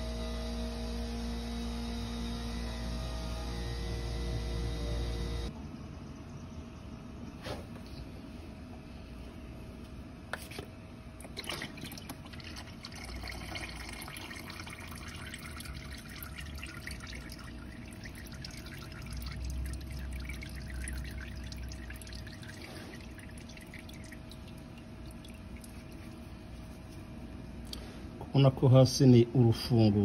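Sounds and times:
oil dripping and trickling: 0:11.2 - 0:27.0.

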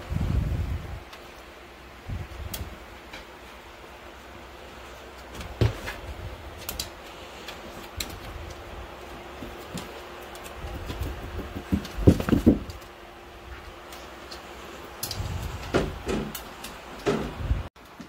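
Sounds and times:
dog steps thumping: 0:10.6 - 0:12.8.

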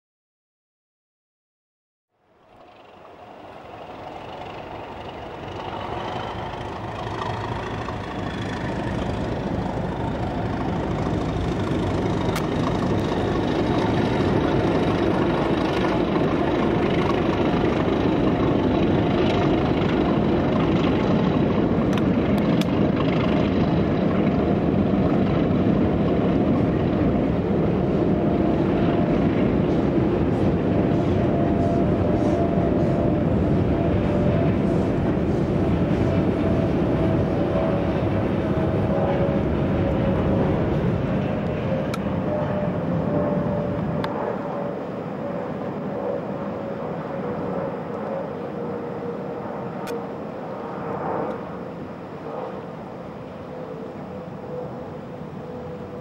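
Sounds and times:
train rumbling: 0:02.3 - 0:50.0
steam locomotive exhaust: 0:02.6 - 0:20.9, 0:27.8 - 0:42.2.

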